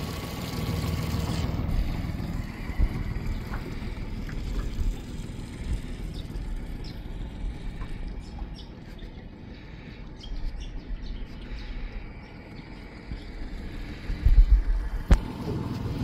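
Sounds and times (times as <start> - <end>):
outboard motor running: 0.0 - 16.0
low rumble: 1.2 - 16.0
small birds chirping: 2.2 - 14.6.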